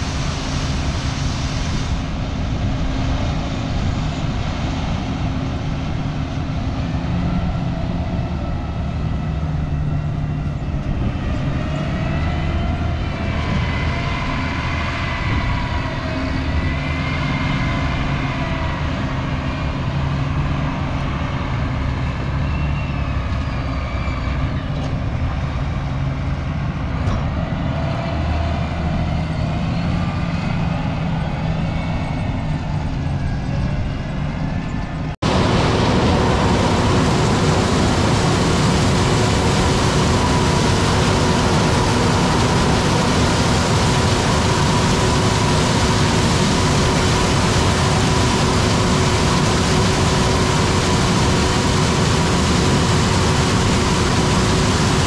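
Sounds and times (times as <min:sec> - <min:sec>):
diesel engine drone: 0:00.0 - 0:55.0
high wavering machine whine: 0:34.6 - 0:55.0.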